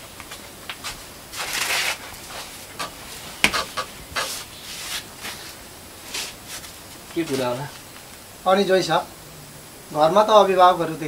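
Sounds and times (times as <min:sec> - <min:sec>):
clothes and feet rustling: 0:00.0 - 0:08.3.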